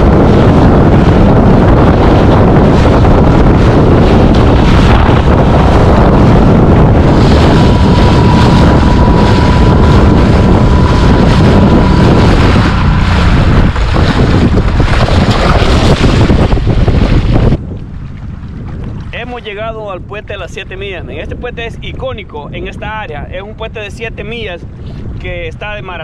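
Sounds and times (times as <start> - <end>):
water splashing: 0.0 - 19.4
wind buffeting microphone: 0.0 - 26.0.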